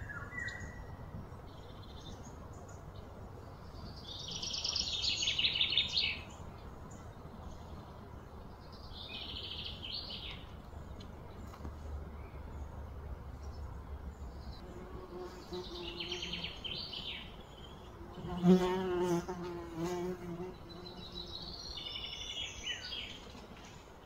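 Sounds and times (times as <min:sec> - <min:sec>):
songbirds singing: 0:00.0 - 0:24.0
flying insect buzzing: 0:18.0 - 0:21.4.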